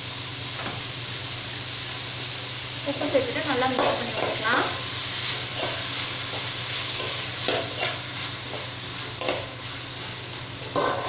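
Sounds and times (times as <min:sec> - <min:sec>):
vegetables sizzling in oil: 0:00.0 - 0:11.0
spoon scraping metal pan: 0:10.7 - 0:11.0.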